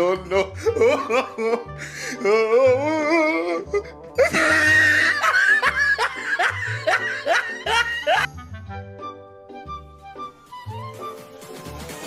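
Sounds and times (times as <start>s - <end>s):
person laughing: 0.0s - 8.3s.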